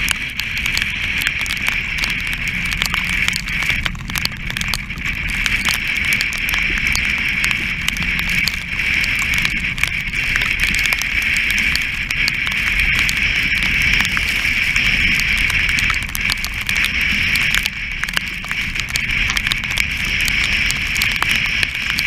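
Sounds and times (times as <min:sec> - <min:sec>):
rushing sea: 0:00.0 - 0:22.0
spray ticking on camera: 0:00.0 - 0:22.0.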